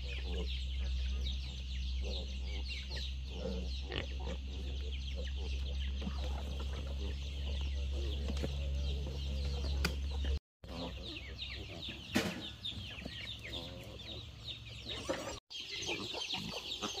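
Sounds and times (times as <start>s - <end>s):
chickens clucking: 0.0s - 17.0s.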